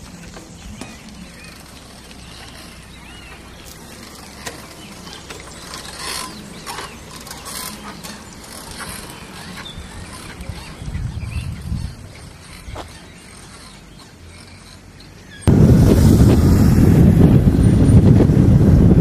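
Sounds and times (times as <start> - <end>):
bicycle freewheel ticking: 0.0 - 15.1.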